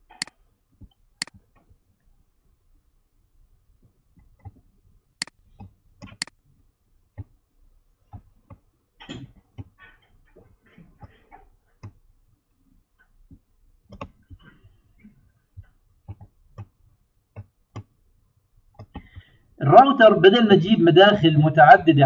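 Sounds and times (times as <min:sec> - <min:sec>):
computer mouse clicking: 0:00.0 - 0:00.4, 0:05.2 - 0:06.4, 0:13.9 - 0:14.8, 0:17.4 - 0:17.9.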